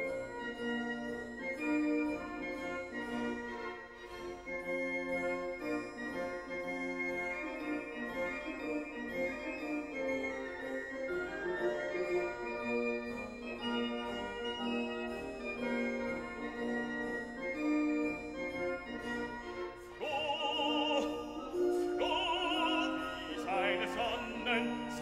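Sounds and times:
operatic voice singing: 20.0s - 25.0s
organ-like keyboard chords: 20.0s - 25.0s.

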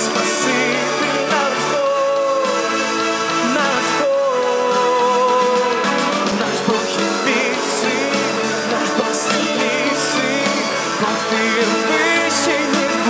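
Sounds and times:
man singing: 0.0s - 13.0s
symphony orchestra with strings: 0.0s - 13.0s.

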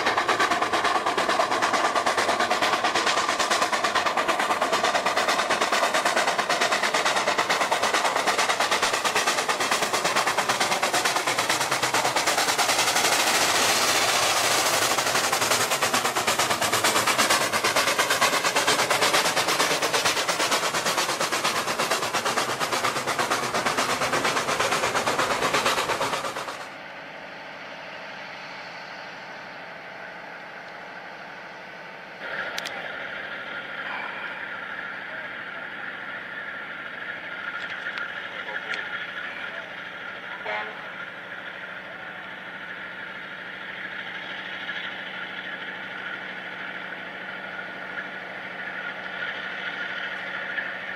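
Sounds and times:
loud steam hiss: 0.0s - 26.7s
steady rumble: 0.0s - 27.0s
steam locomotive chuffing: 0.0s - 50.9s.

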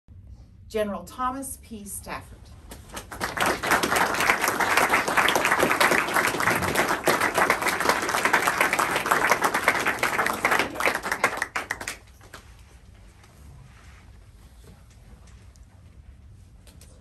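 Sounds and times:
audience applauding: 2.7s - 12.4s.

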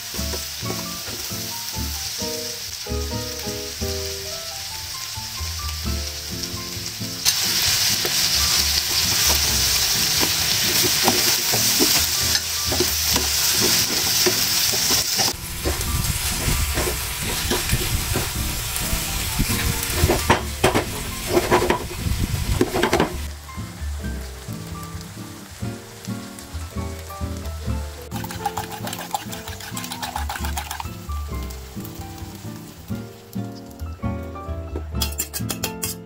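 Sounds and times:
vegetables sizzling in a frying pan: 0.0s - 33.9s
plastic spatula scraping a pan: 19.6s - 23.2s.

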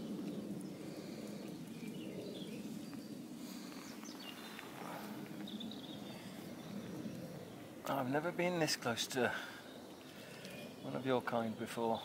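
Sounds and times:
faint songbird chirps: 0.0s - 12.0s.

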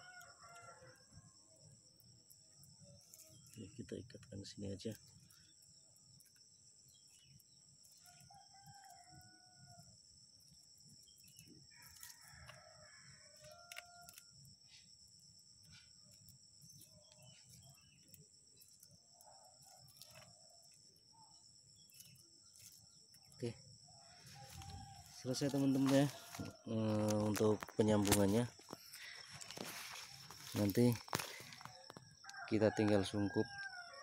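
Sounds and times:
faint rooster crowing: 0.0s - 1.6s, 8.0s - 10.0s, 11.7s - 14.4s, 23.4s - 34.0s.

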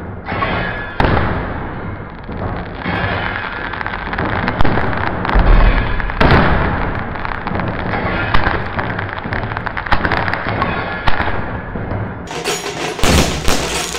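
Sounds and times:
fireworks crackling: 1.6s - 10.7s, 12.3s - 13.9s.

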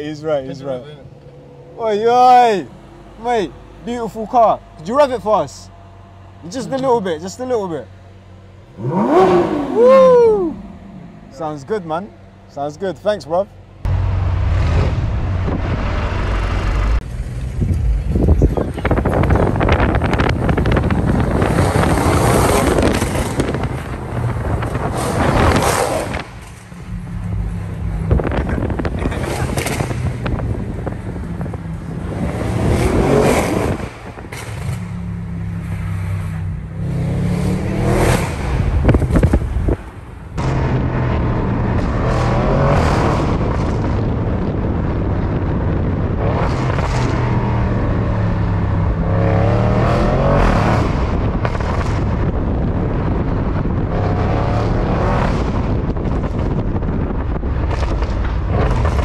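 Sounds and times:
car engine idling: 0.0s - 9.2s
car engine revving: 0.0s - 12.5s, 13.6s - 59.0s.

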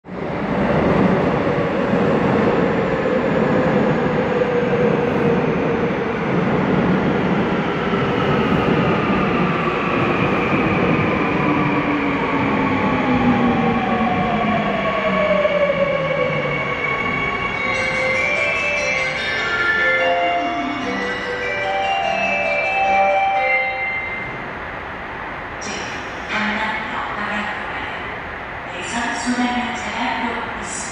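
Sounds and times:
electric train rumbling: 0.1s - 30.9s.

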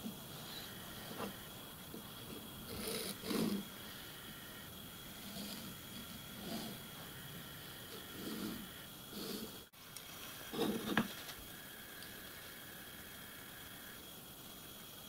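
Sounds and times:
faint steady high tone: 0.0s - 1.8s.

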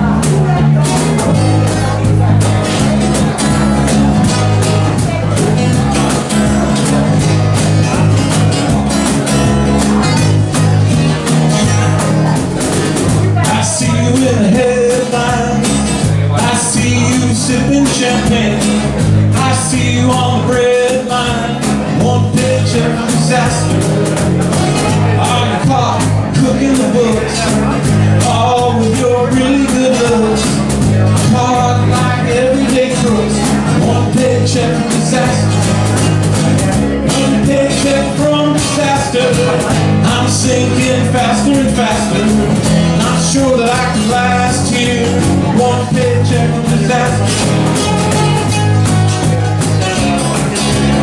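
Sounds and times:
acoustic guitars strumming: 0.0s - 51.0s
bass line: 0.0s - 51.0s
lead melody: 0.0s - 51.0s.

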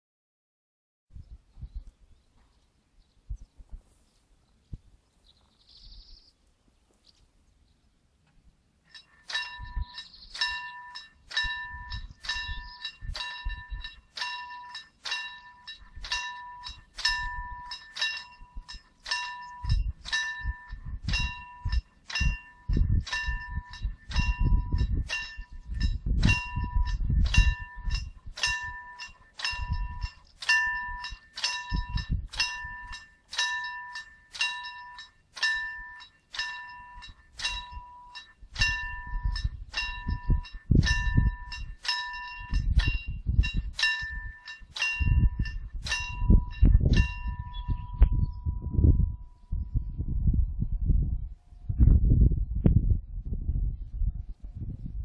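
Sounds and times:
wind rumble on microphone: 1.1s - 6.3s, 9.0s - 55.0s
level crossing bell ringing: 26.3s - 42.8s, 43.7s - 47.8s.

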